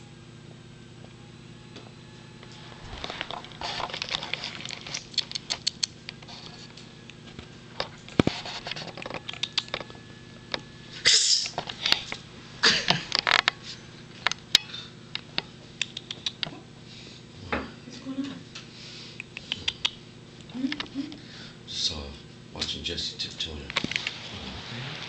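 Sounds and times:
faint steady hum: 0.0s - 25.0s
scratchy rustling: 8.2s - 9.0s.

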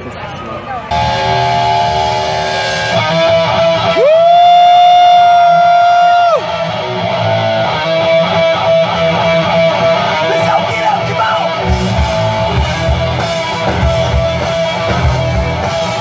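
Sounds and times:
live rock band over pa: 0.0s - 16.0s
guitars: 0.8s - 16.0s
long held sliding note: 0.9s - 4.0s.

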